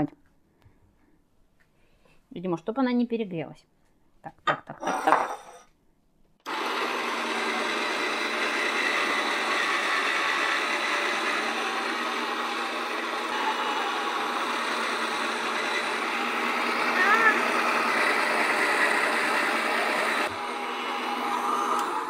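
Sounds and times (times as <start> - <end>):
blade grinding frozen fruit: 6.5 - 22.0
electric motor running: 6.5 - 22.0.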